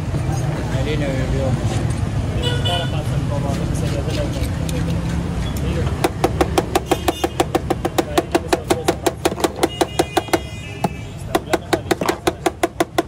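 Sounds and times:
utensil tapping metal tray: 5.9s - 13.0s.

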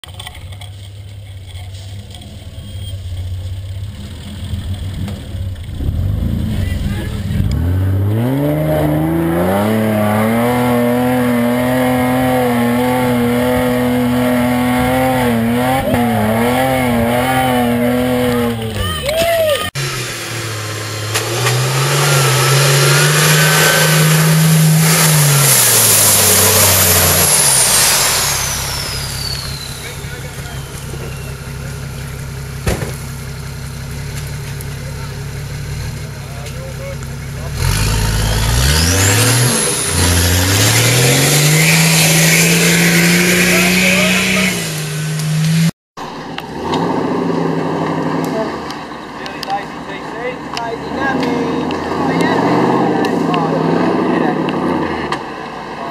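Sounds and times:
truck engine revving: 0.0s - 55.9s
high whine falling in pitch: 19.8s - 31.5s
water spraying from wheels: 21.0s - 45.7s.

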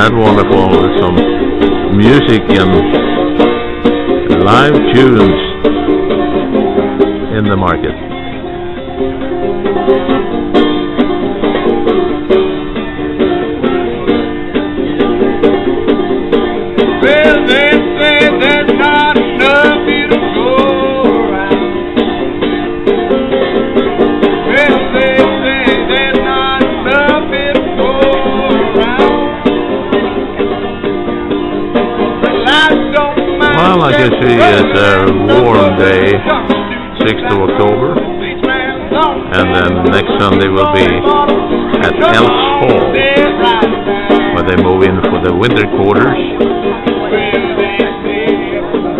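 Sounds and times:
banjo plucked rhythm: 0.0s - 48.9s
man singing: 16.8s - 22.0s, 24.4s - 30.2s, 32.4s - 48.9s.

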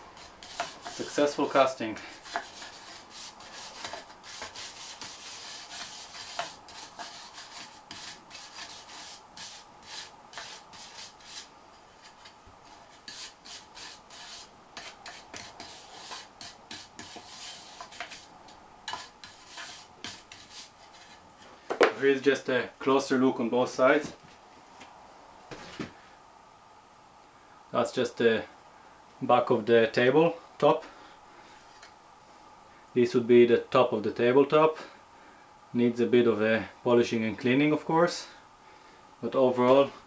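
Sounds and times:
stiff brush sweeping sand on metal: 0.0s - 18.3s, 18.9s - 21.2s.

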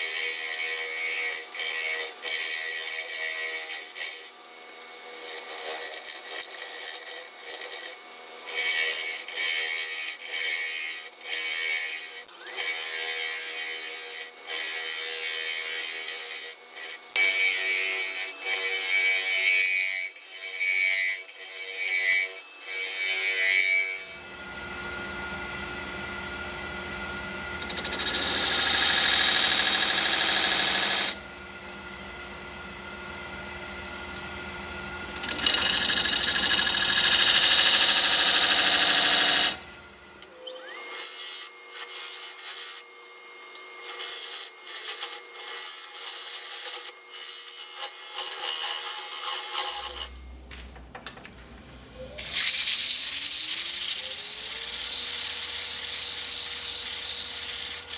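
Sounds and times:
lathe gouge hissing and scraping: 27.6s - 31.2s, 35.2s - 39.6s, 52.2s - 57.9s.

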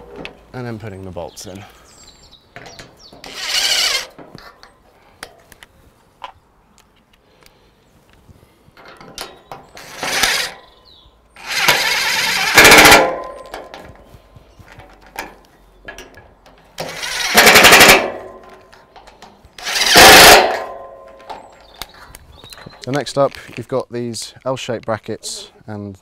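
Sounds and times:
impact driver motor spinning: 3.2s - 4.1s, 9.8s - 10.6s, 11.4s - 13.1s, 16.8s - 18.1s, 19.6s - 20.6s
impact driver hammering: 11.4s - 13.7s, 16.8s - 18.5s, 19.6s - 21.2s.

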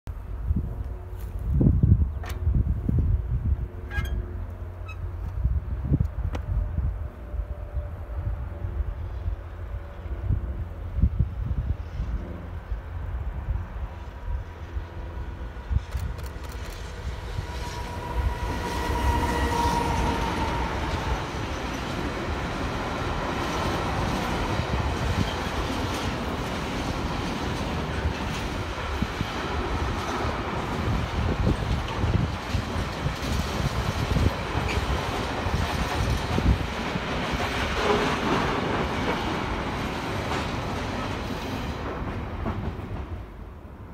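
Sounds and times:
freight wagons rumbling on rails: 0.1s - 43.9s
locomotive high tone: 3.8s - 5.2s, 17.3s - 22.1s.

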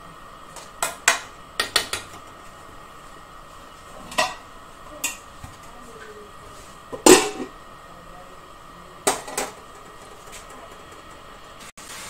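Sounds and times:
metal lid clanking on pan: 7.0s - 7.5s.

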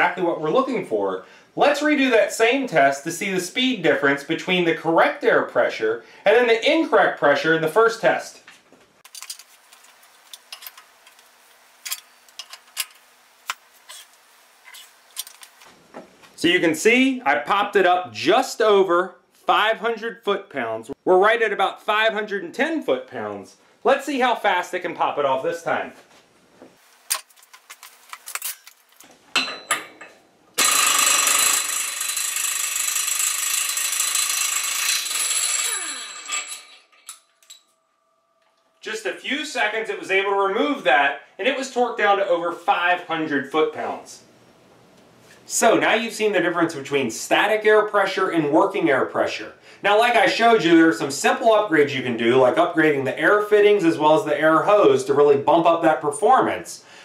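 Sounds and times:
air impact wrench hammering: 30.6s - 36.8s.

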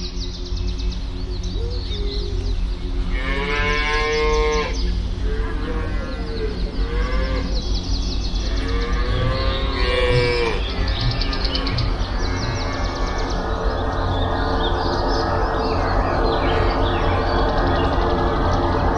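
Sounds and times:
low background rumble: 0.0s - 18.9s
cows mooing: 3.1s - 7.6s, 8.4s - 13.4s.

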